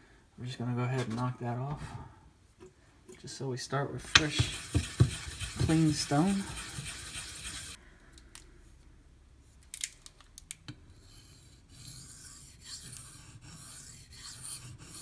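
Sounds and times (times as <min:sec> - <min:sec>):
knife scraping on sharpening stone: 0:04.2 - 0:07.8.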